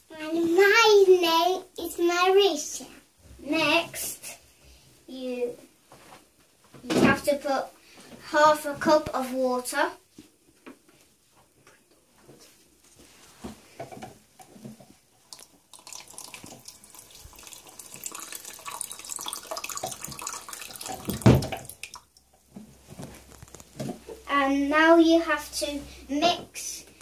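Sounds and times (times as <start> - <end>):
tap water running into plastic cup: 15.2 - 22.1.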